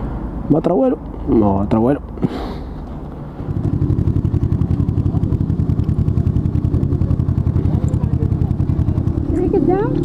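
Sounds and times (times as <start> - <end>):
motorcycle engine idling: 3.2 - 10.0.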